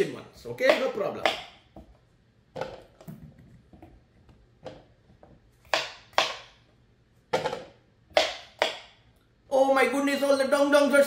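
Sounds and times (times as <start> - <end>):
knife chopping on wooden board: 0.6 - 1.9, 5.6 - 6.6, 7.4 - 8.9.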